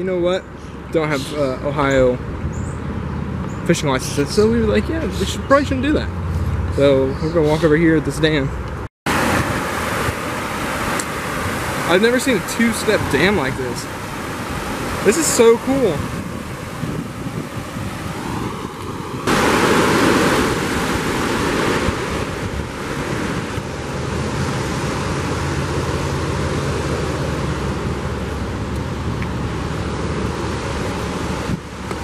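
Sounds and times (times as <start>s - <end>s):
river water rushing over dam: 9.1s - 32.0s
wind noise on microphone: 12.8s - 32.0s.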